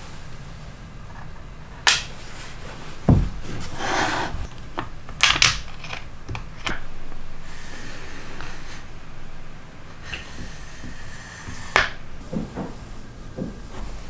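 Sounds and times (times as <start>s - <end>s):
scraping slide on a mat: 2.3s - 4.5s
dull thump: 3.0s - 3.7s
wooden parts clicking: 4.4s - 6.9s.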